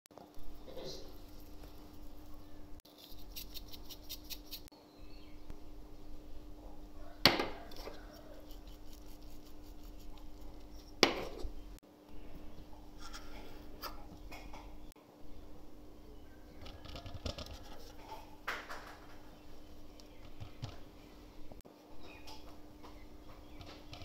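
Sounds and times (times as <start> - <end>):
steady low hum: 0.2 - 16.8.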